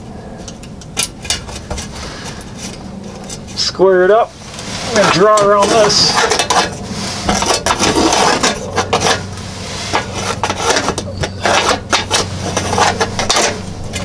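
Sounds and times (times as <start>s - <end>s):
metal plate scraping and clinking: 4.5s - 14.0s.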